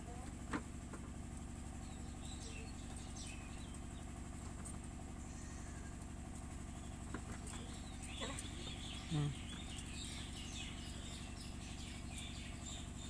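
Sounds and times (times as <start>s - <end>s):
low engine hum: 0.0s - 13.0s
faint bird chirps: 1.8s - 4.2s, 5.2s - 6.0s, 6.7s - 13.0s.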